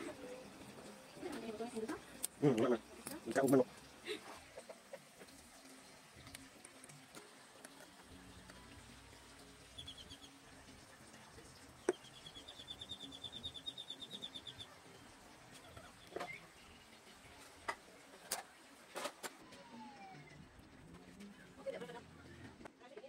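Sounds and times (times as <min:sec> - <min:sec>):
bird chirping and trilling: 0:09.6 - 0:10.4, 0:11.8 - 0:15.1.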